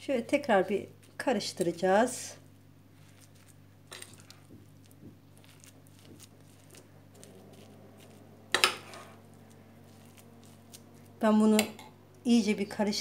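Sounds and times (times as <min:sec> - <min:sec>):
spoon stirring porridge: 0:02.8 - 0:12.7.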